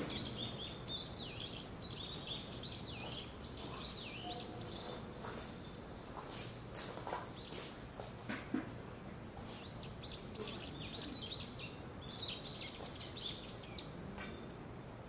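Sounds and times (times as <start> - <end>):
small birds chirping: 0.0 - 8.1, 8.7 - 14.1
low steady background hum: 0.0 - 15.0.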